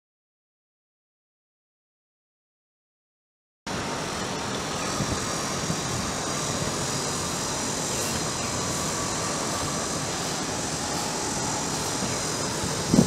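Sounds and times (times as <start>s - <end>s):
street traffic roar: 3.7s - 13.0s.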